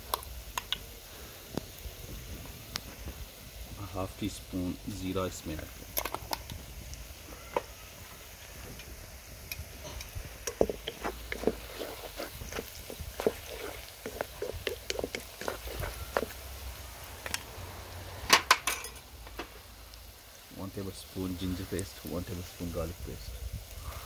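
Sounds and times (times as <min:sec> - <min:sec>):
wooden spatula scraping a wok: 0:09.8 - 0:18.3.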